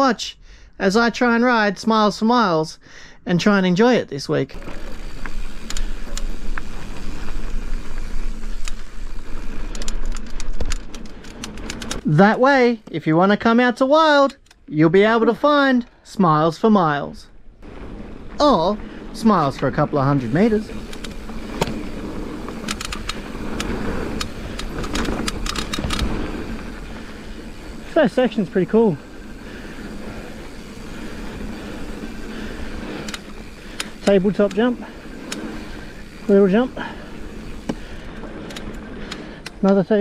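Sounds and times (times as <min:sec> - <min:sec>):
bike riding rumble: 0:04.5 - 0:13.3, 0:17.3 - 0:40.0
freewheel ticking: 0:18.8 - 0:40.0
scattered clicks: 0:20.8 - 0:21.9, 0:22.5 - 0:26.7, 0:32.8 - 0:35.8, 0:37.6 - 0:40.0.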